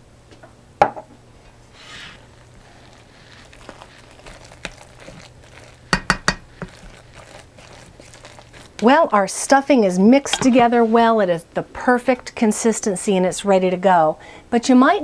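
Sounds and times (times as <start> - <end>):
spatula stirring bread stuffing: 1.7 - 11.3.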